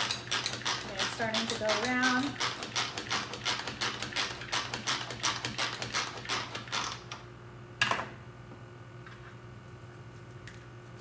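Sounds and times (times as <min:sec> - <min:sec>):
food processor ratcheting clicks: 0:00.0 - 0:07.2.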